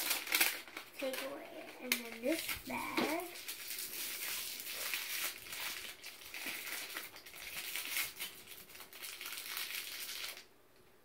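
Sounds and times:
plastic bag rustling: 0:00.0 - 0:10.5.

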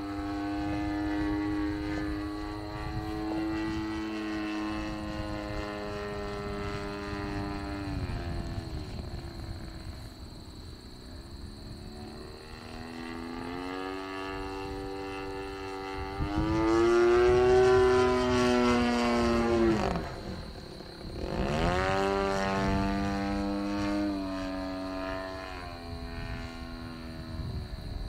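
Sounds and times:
model plane engine buzzing: 0:00.0 - 0:28.0.

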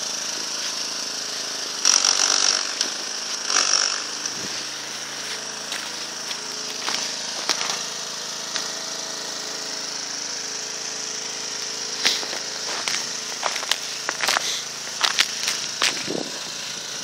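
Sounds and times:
faint engine hum: 0:00.0 - 0:17.0
footsteps crunching in snow: 0:04.3 - 0:07.9, 0:12.0 - 0:16.8.

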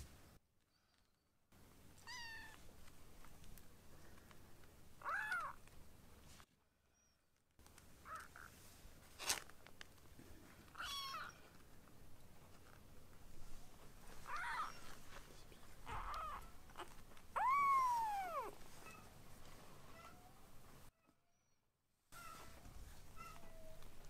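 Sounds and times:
kitten mewing: 0:10.8 - 0:11.4, 0:15.8 - 0:18.6.

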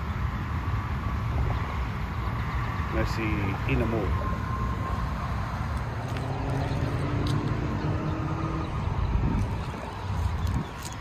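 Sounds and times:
engine and road noise rumble: 0:00.0 - 0:11.0.

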